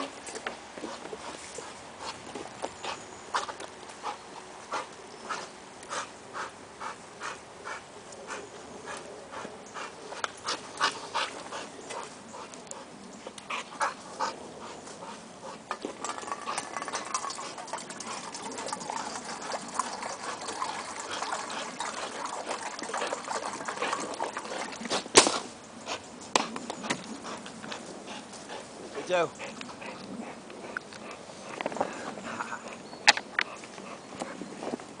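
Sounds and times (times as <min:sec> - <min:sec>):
dog panting: 0:00.8 - 0:25.1, 0:26.8 - 0:32.8, 0:33.4 - 0:34.5
sharp crack: 0:25.1 - 0:25.5.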